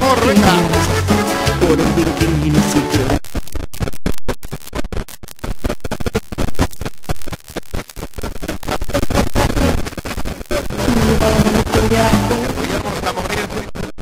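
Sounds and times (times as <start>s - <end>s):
skipping cd music: 0.0s - 3.2s.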